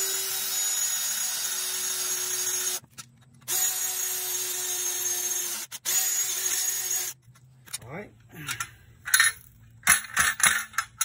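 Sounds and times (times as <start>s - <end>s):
cordless drill boring metal: 0.0s - 2.8s, 3.5s - 7.2s.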